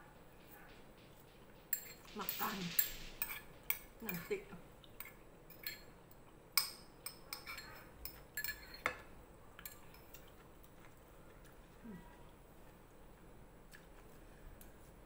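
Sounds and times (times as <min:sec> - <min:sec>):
metal spoon clinking on ceramic bowl: 0:01.7 - 0:04.3, 0:05.0 - 0:05.9, 0:06.6 - 0:10.1.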